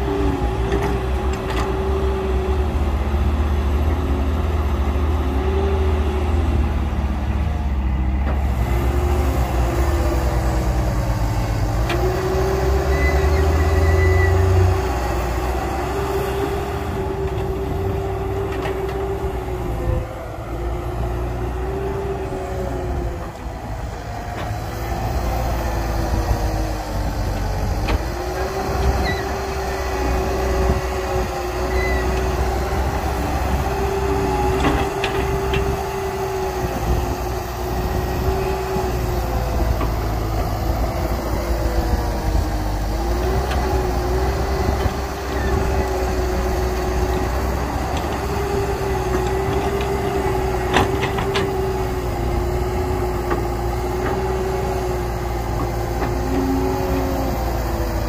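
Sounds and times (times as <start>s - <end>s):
excavator engine rumbling: 0.0s - 58.0s
hydraulic whine: 8.2s - 15.0s, 22.2s - 58.0s.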